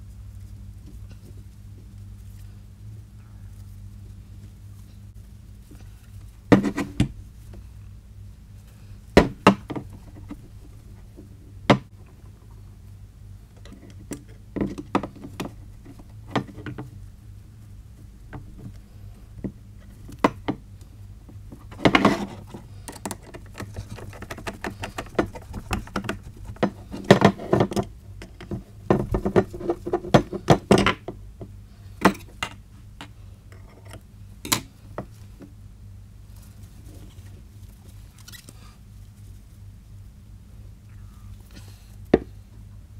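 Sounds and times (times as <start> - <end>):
steady low hum: 0.0 - 42.9
rustling of wrap: 36.2 - 40.0.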